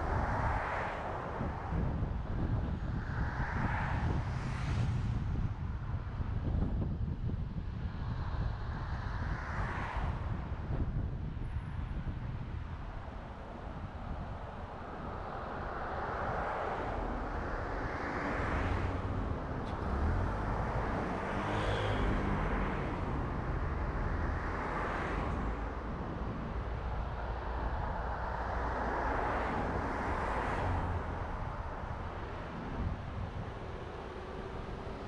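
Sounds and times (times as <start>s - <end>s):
car driving road noise: 0.0s - 35.0s
oncoming vehicles passing: 15.3s - 35.0s.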